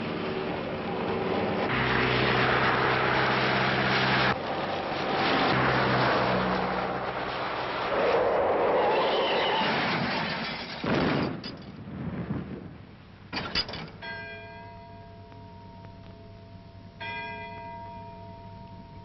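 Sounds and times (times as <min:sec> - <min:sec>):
loud rushing noise: 0:00.0 - 0:10.3
large bell tolling: 0:14.0 - 0:19.0.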